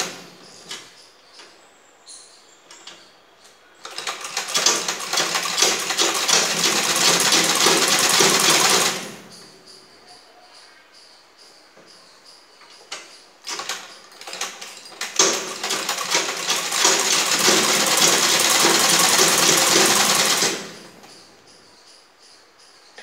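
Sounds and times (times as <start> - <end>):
sewing machine stitching: 3.8 - 9.2, 13.5 - 20.9.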